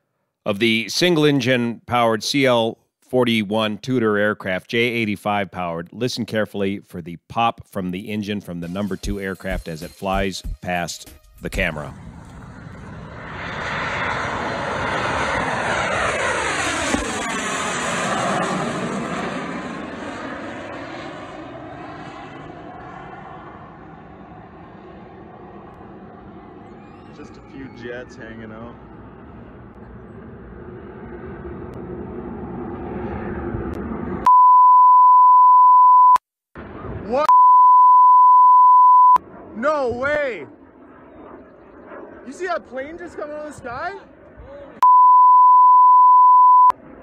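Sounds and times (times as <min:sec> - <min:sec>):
jets passing low overhead: 0:11.6 - 0:34.3, 0:36.6 - 0:37.3, 0:39.1 - 0:44.8, 0:46.6 - 0:47.0
loud electronic censor beep: 0:34.3 - 0:36.2, 0:37.3 - 0:39.2, 0:44.8 - 0:46.8.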